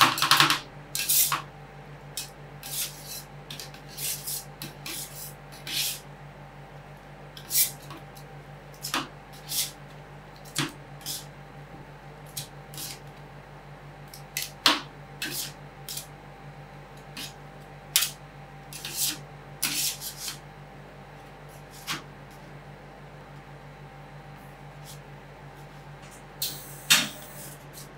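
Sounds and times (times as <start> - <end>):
steady low hum: 0.0 - 27.9
metal spatulas scraping and tapping: 0.3 - 1.4, 2.2 - 6.0, 14.4 - 16.1, 18.0 - 20.4.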